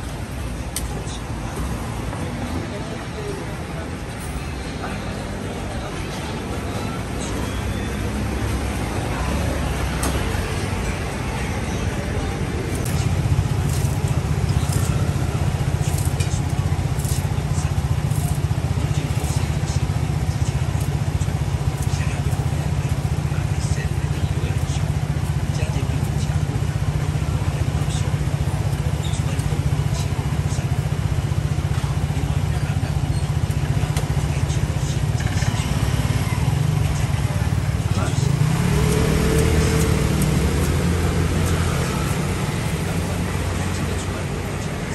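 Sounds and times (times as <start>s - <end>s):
pulsing motor rumble: 5.1s - 44.9s
blade scraping sugar cane: 12.7s - 19.6s.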